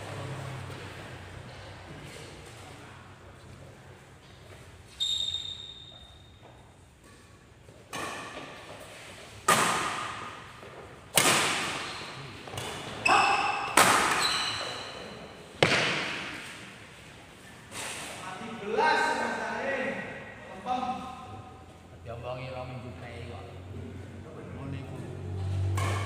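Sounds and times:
rackets hitting shuttlecock: 7.0s - 15.0s, 15.6s - 16.8s, 25.6s - 26.0s.

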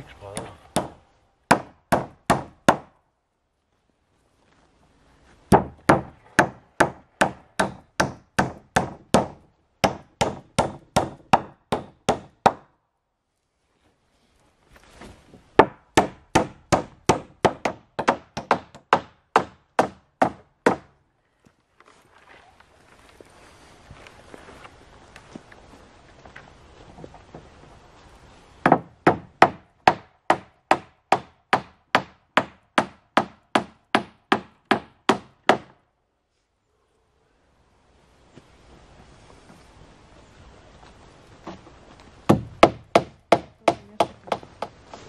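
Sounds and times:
hammer nailing wooden planks: 0.4s - 2.9s, 5.5s - 12.7s, 15.6s - 20.9s, 28.6s - 35.8s, 42.3s - 44.8s.

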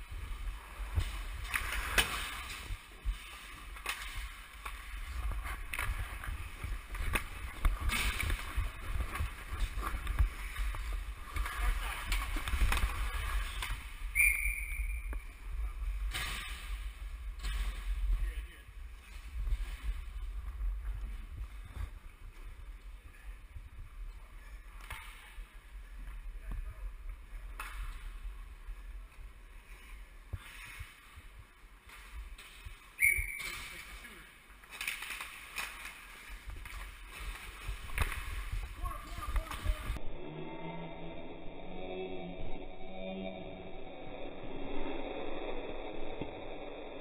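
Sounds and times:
low rumble of movement: 0.0s - 14.2s
low rumble: 36.4s - 47.0s.

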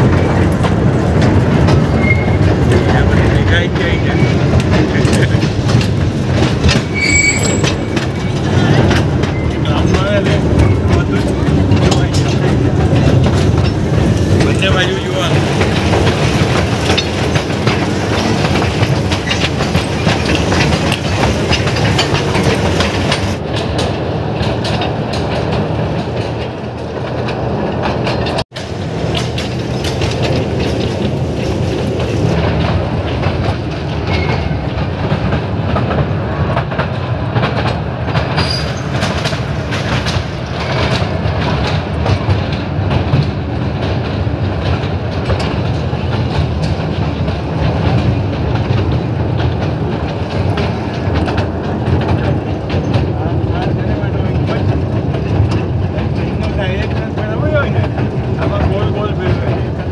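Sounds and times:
train rumbling: 0.0s - 59.9s
wheels clacking over rails: 0.0s - 59.9s.

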